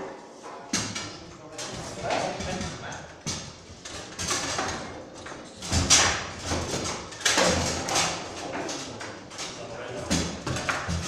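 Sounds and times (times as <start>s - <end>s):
foosball knocks and clacks: 0.7s - 11.0s.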